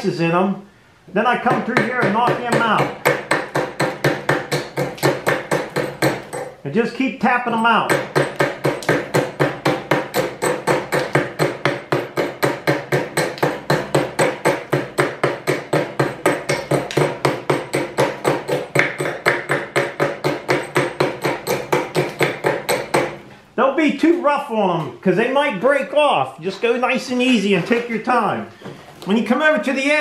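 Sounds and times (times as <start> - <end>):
steel tool tapping brick: 7.9 - 23.1.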